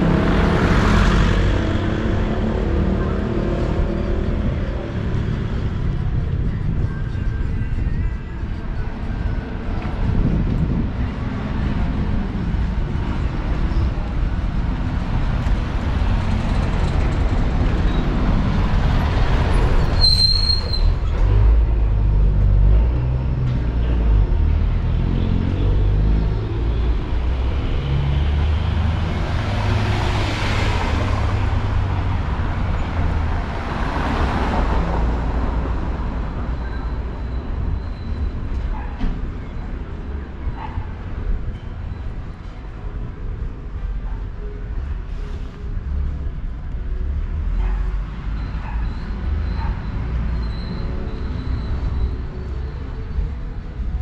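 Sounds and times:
city street traffic: 0.0 - 54.0
high squeal: 19.4 - 21.5, 36.4 - 39.8, 48.3 - 53.3.

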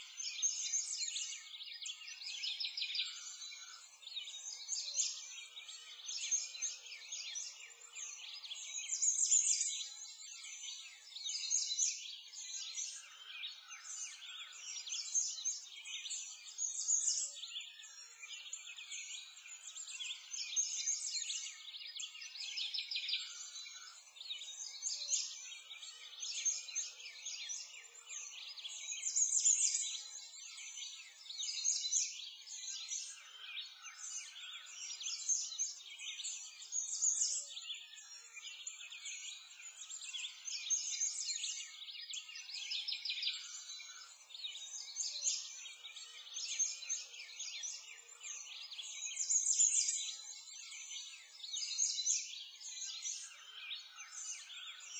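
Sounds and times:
songbirds chirping and trilling: 0.0 - 54.9.

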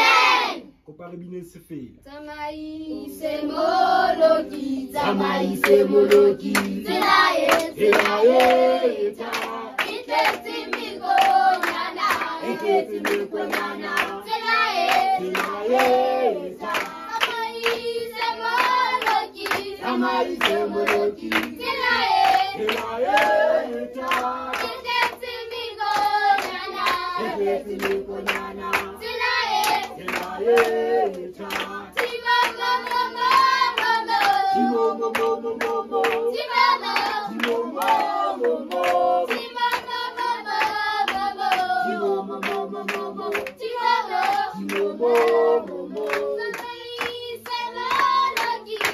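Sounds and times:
hands clapping in time: 5.1 - 14.2, 29.6 - 40.0, 40.6 - 48.9.

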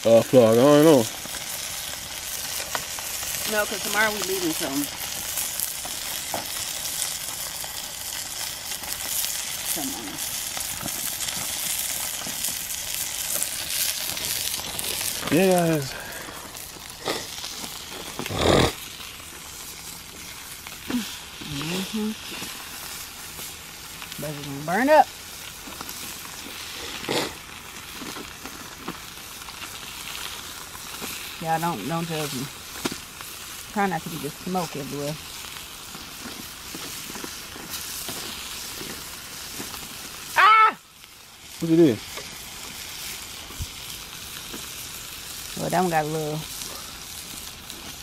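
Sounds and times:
food sizzling on foil: 0.0 - 48.0
spatula scraping foil: 13.2 - 24.9, 35.8 - 40.0.

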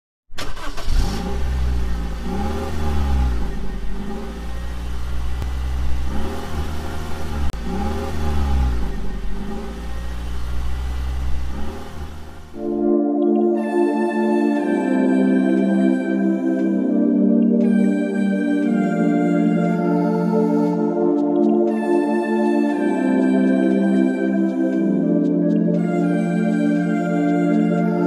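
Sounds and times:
car engine idling and revving: 0.3 - 12.7.

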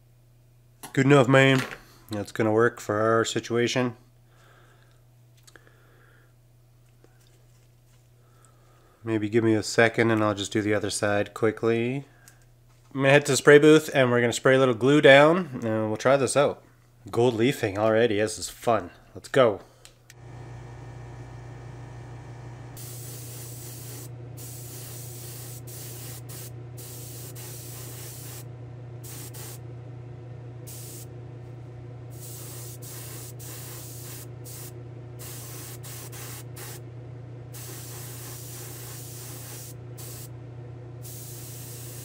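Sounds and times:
motor hum: 20.1 - 42.0
airbrush spraying hiss: 22.7 - 29.6, 30.7 - 31.1, 32.1 - 36.8, 37.5 - 40.3, 41.0 - 42.0.

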